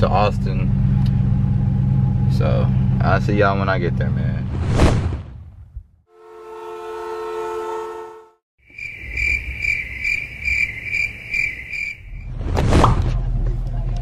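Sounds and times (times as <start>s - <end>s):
cricket chirping: 8.6s - 12.3s.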